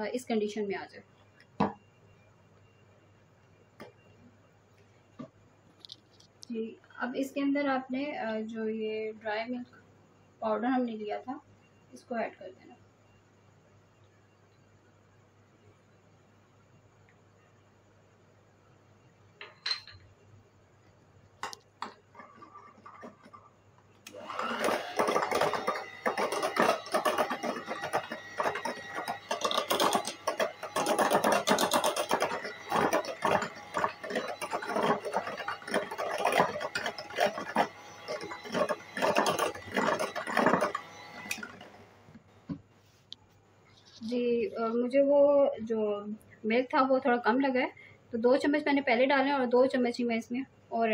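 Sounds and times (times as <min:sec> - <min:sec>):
electric hand mixer whirring: 0:24.1 - 0:42.1.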